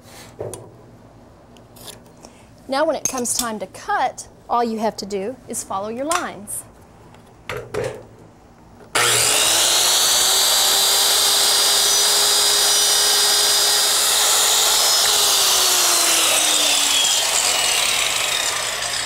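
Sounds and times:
circular saw cutting wood: 9.0 - 19.0.

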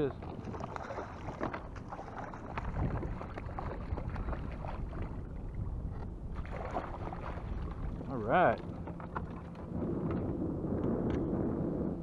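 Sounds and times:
wind on microphone: 0.0 - 12.0
fish thrashing in water: 0.2 - 5.5, 6.3 - 8.1.

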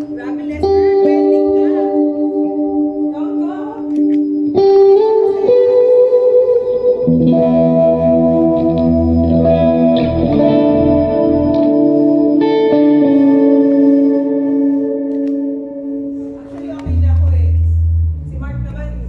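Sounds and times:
electric guitar chords: 0.0 - 19.0.

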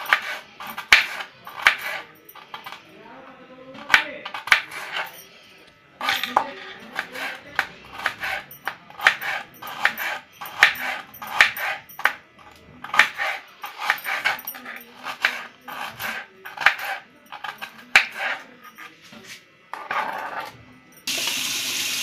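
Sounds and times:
knife chopping on cutting board: 0.0 - 2.0, 3.8 - 5.0, 6.9 - 8.4, 9.0 - 12.2, 12.8 - 14.4, 15.0 - 18.4.

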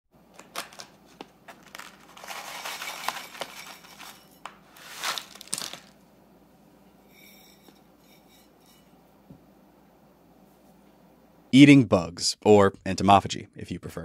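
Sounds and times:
foil pouch crinkling: 0.4 - 6.0
dried insects pattering on plate: 5.0 - 6.0.

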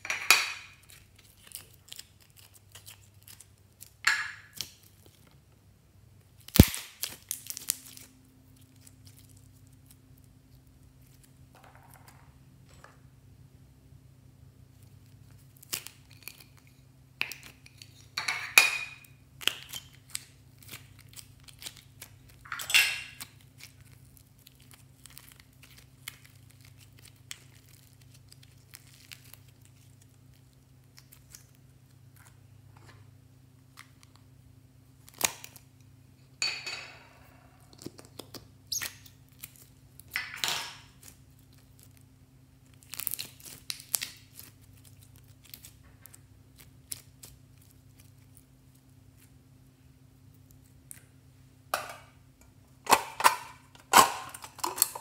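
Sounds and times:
slime squelching: 40.9 - 49.4.

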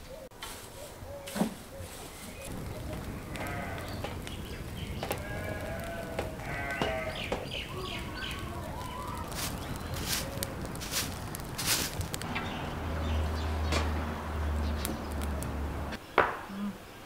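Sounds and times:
brush fire crackling: 1.9 - 16.4
animals bleating: 3.0 - 9.4.

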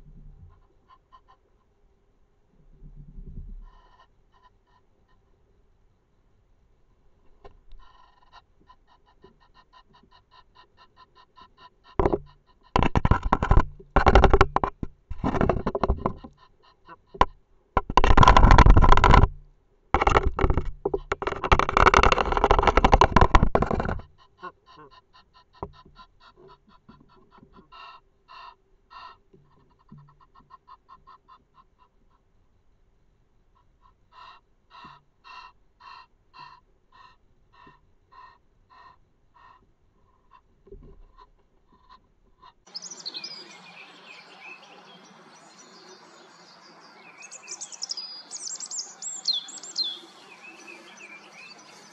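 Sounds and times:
goose crackling calls: 47.1 - 51.9.

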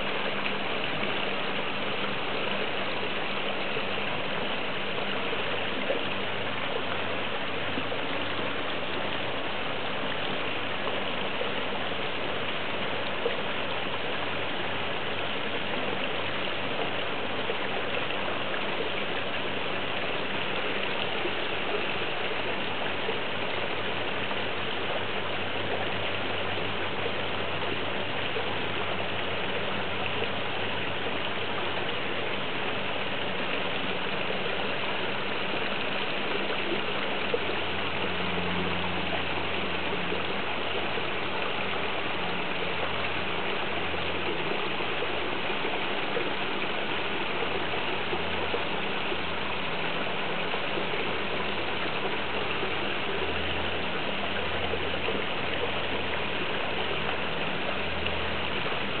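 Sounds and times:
running water rushing: 0.0 - 59.0.

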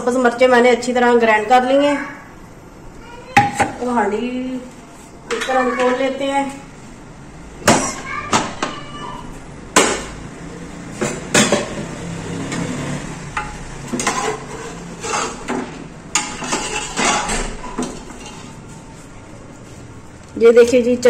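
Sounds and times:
metal spoon scraping pot: 11.0 - 18.7.

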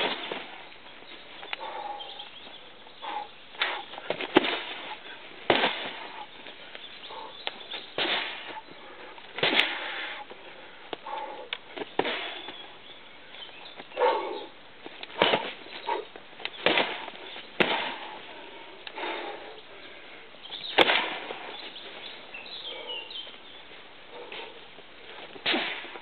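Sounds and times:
kicks thudding on bags: 0.0 - 0.6, 3.6 - 6.2, 7.8 - 8.6, 11.8 - 12.6, 15.1 - 15.8, 16.6 - 18.1
loud breaths: 1.5 - 7.4, 8.2 - 11.5, 17.9 - 20.4.

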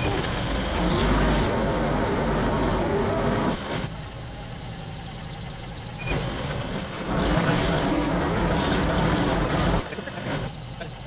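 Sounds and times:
loud high-pitched hiss: 10.5 - 11.0.

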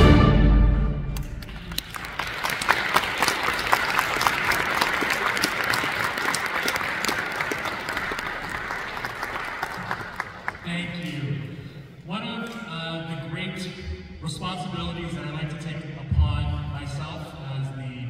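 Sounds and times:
audience applauding: 1.2 - 10.8.

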